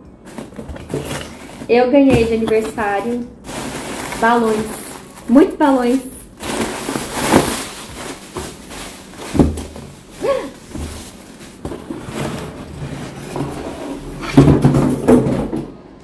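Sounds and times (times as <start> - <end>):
cardboard and plastic rustling: 0.1 - 15.6
knocks and thumps: 0.3 - 2.9, 14.2 - 15.8.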